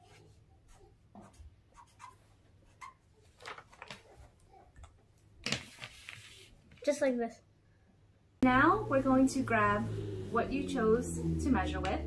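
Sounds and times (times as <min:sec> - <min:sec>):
marker squeaking on paper: 0:00.0 - 0:03.1
paper rustling: 0:02.8 - 0:04.4, 0:05.4 - 0:06.9.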